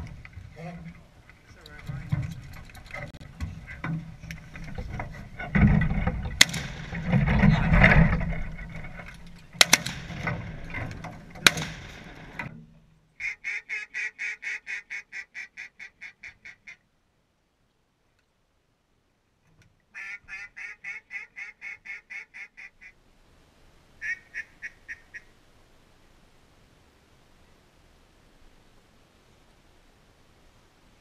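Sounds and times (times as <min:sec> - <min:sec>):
rough outdoor noise: 0:00.0 - 0:31.0
sharp cracks: 0:01.5 - 0:12.6
descending duck quacks: 0:13.2 - 0:16.8, 0:19.9 - 0:23.0, 0:24.0 - 0:25.3
ducks quacking: 0:13.2 - 0:16.8, 0:19.9 - 0:23.0, 0:24.0 - 0:25.3.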